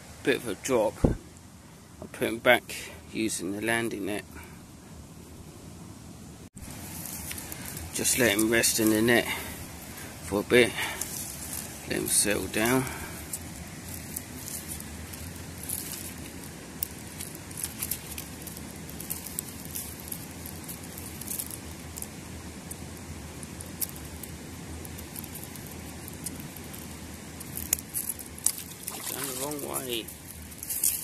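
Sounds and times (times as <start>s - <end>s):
river water lapping: 28.5s - 30.0s.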